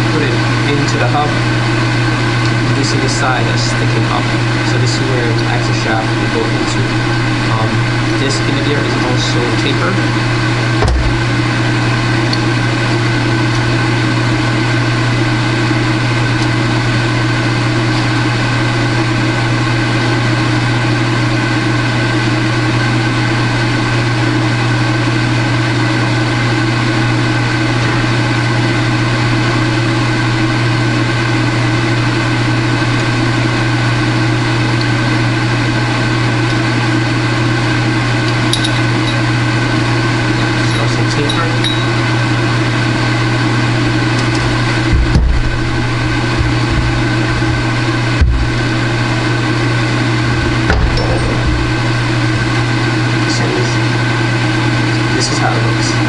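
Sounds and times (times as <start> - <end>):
loud machine hum: 0.0 - 56.0
single knock: 10.8 - 11.3, 50.4 - 52.0.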